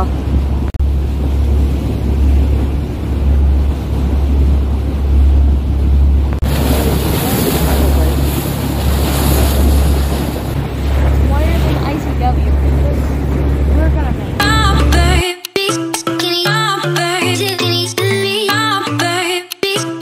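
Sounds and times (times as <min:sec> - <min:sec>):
boat engine drone: 0:00.0 - 0:15.2
wind buffeting microphone: 0:00.0 - 0:15.2.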